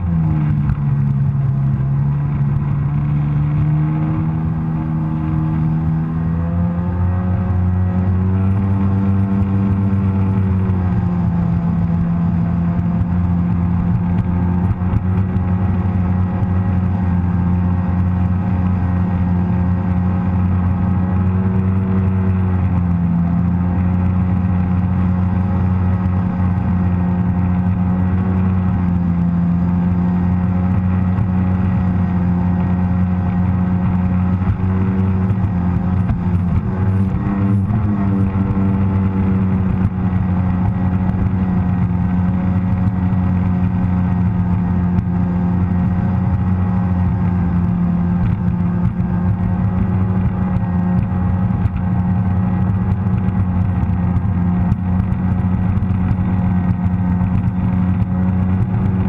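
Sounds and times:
watercraft engine drone: 0.0 - 59.0.

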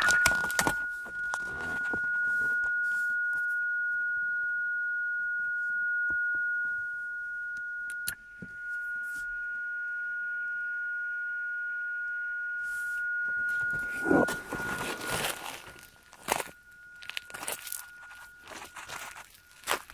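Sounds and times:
radio beat note tone: 12.6 - 19.1.

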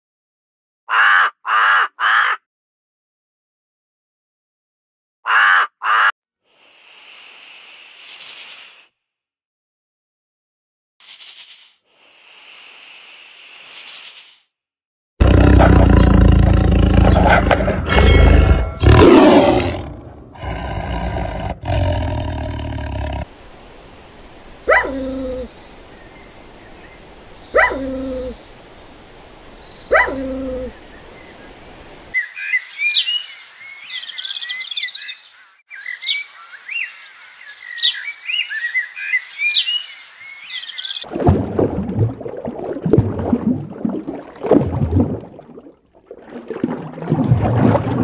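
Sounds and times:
sharp animal calls: 5.3 - 6.1
big cat roaring: 15.2 - 23.3
birds chirping rapidly: 15.7 - 19.6, 29.6 - 41.1.

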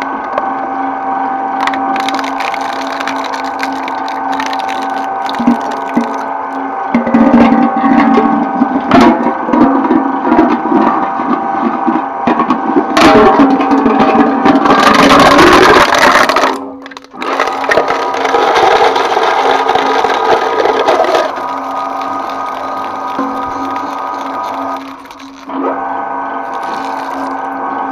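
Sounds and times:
shredder motor humming: 0.4 - 8.7, 14.6 - 27.9
metal cans crunching: 1.6 - 6.3, 14.7 - 25.5, 26.5 - 27.5.

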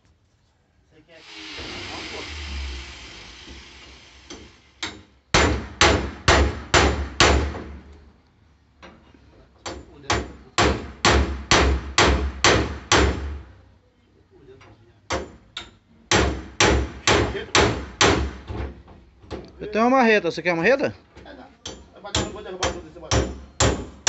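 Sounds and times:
hammer striking metal bar: 21.6 - 24.0.

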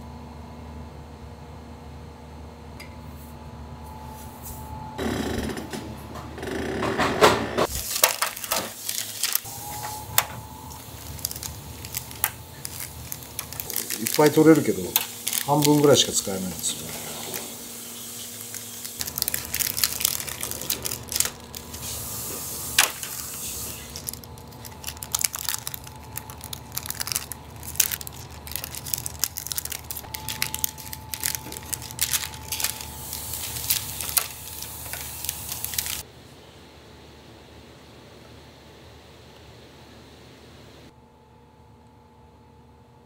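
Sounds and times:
plastic film crinkling: 7.7 - 36.0
low hum: 9.4 - 15.7, 16.5 - 42.8.

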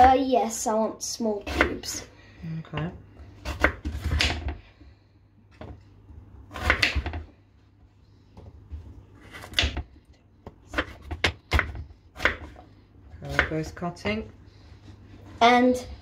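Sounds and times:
knife chopping on cutting board: 6.5 - 7.2, 10.7 - 12.6, 13.2 - 13.6.

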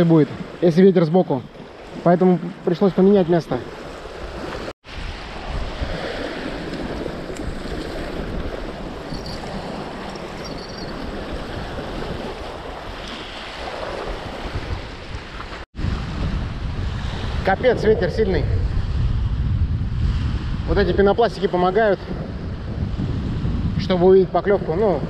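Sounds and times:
waves washing against shore: 0.0 - 19.3
wind buffeting microphone: 3.7 - 25.0.

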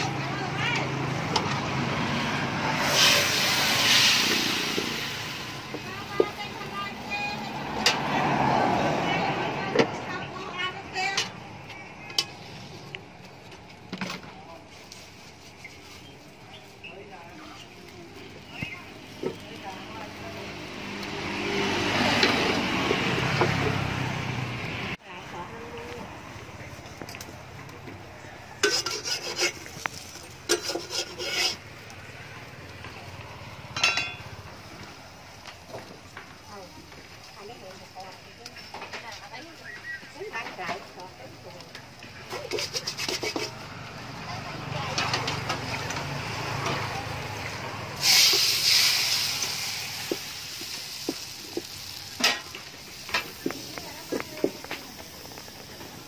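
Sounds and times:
batter sizzling in hot wok: 0.0 - 9.0, 14.6 - 25.0, 28.2 - 56.0
metal spatula scraping a wok: 0.9 - 8.4, 14.6 - 16.4, 28.5 - 31.8, 42.2 - 43.8
crackling pops of frying: 17.9 - 24.0, 28.6 - 43.7, 44.9 - 56.0
ringing metal clink: 33.8 - 34.2.

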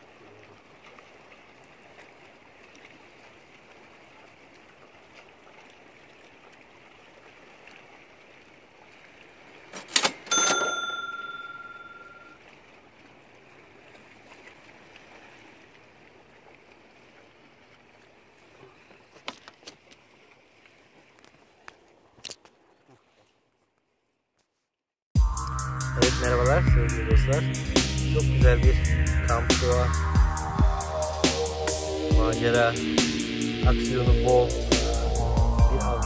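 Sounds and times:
ringing metal strike: 10.3 - 12.2.

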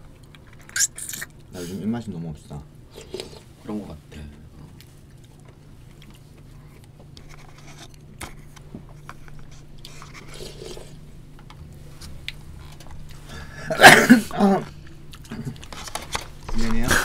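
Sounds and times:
steady low hum: 0.0 - 17.0
chewing: 4.6 - 13.3, 14.6 - 16.2.

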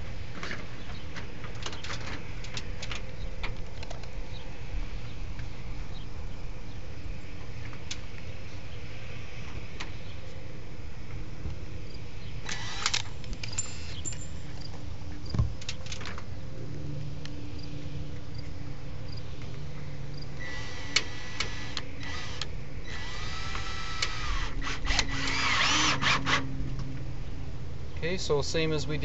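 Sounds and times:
steady low hum: 0.0 - 29.0
power drill driving screws: 12.4 - 14.1, 20.4 - 26.4.

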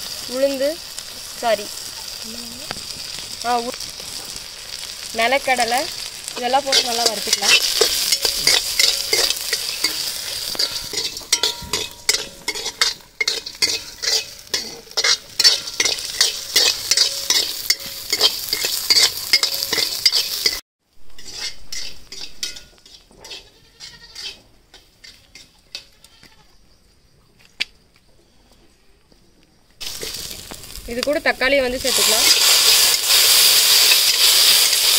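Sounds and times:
food sizzling in oil: 0.0 - 25.8, 29.8 - 34.9
ladle scraping a pan: 5.7 - 25.9
goats bleating: 25.9 - 26.5.

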